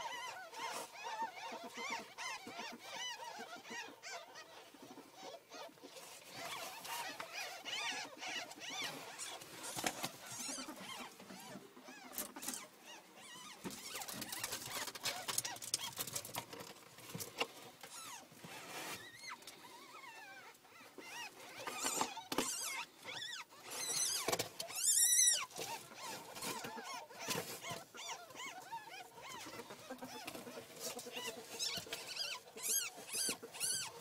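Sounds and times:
ferrets squeaking: 0.0 - 16.7, 17.4 - 34.0
rustling of bedding and cardboard: 5.8 - 20.0, 21.0 - 34.0.

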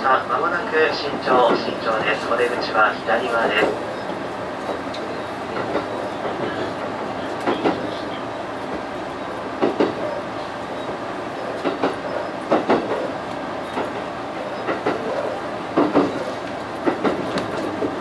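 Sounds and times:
train running rumble: 0.0 - 18.0
train wheels clacking over rail joints: 3.6 - 8.1, 9.5 - 10.2, 10.8 - 18.0.

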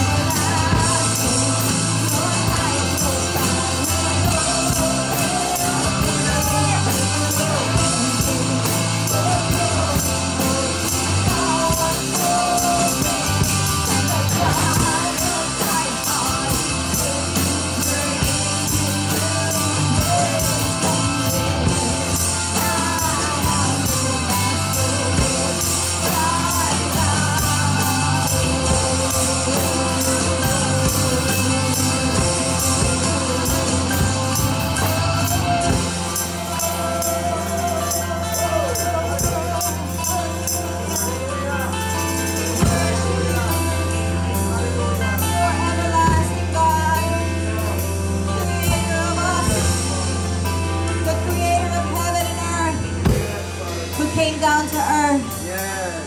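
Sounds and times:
women singing worship song: 0.0 - 41.6
drum kit and band: 0.0 - 56.0.

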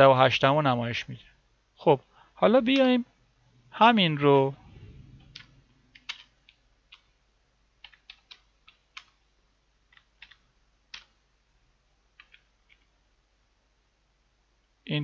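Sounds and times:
keyboard keystroke clicks: 9.9 - 11.2.

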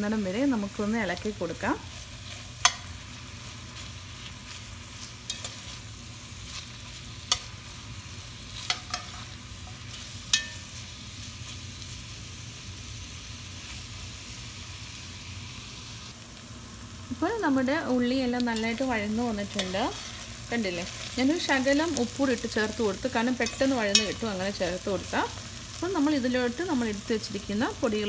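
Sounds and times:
onions sizzling in oil: 0.0 - 28.0
metal spoon clinking against pot: 8.7 - 10.6, 23.4 - 24.2.

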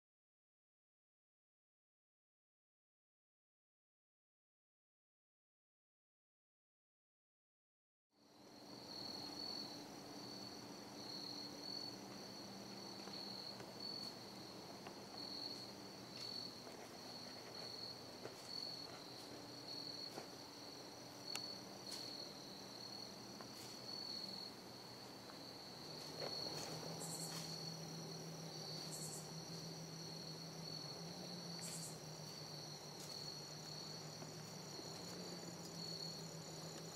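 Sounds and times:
crickets chirring: 8.2 - 36.9
faint low hum: 8.2 - 36.9.

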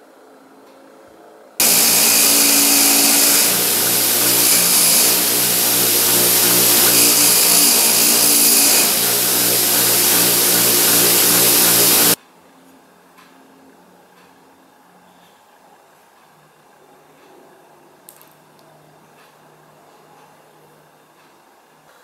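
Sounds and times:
motor hum: 1.6 - 12.2
wire wheel scraping metal: 1.6 - 12.2.

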